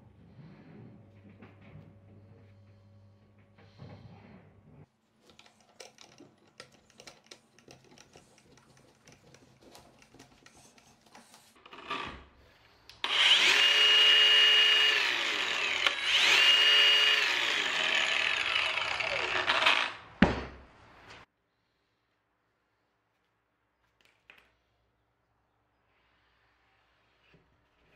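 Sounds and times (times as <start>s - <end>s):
faint clicks of metal parts: 5.2s - 11.6s
angle grinder motor running: 13.0s - 20.1s.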